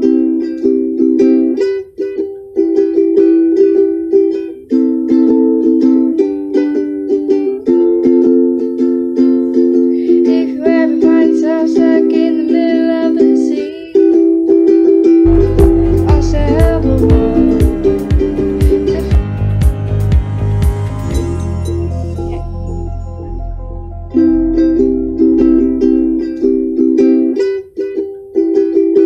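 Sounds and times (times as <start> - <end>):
ukulele strummed in chords: 0.0 - 29.0
person singing: 9.5 - 14.6, 15.3 - 22.7.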